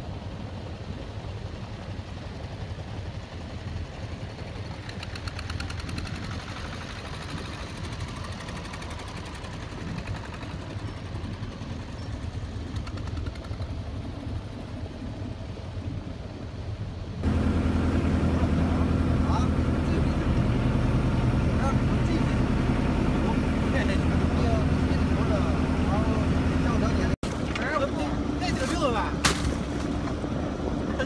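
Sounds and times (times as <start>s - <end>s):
boat engine droning: 0.0s - 31.0s
wind: 0.0s - 31.0s.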